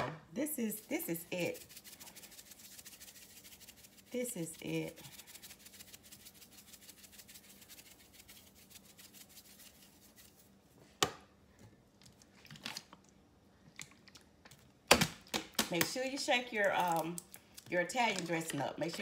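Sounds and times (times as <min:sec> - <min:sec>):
spice shaker granules pattering: 0:00.8 - 0:10.5.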